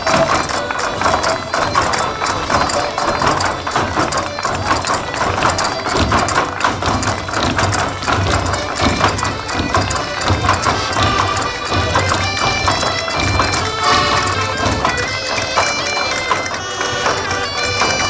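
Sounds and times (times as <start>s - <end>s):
accordion: 0.0s - 18.0s.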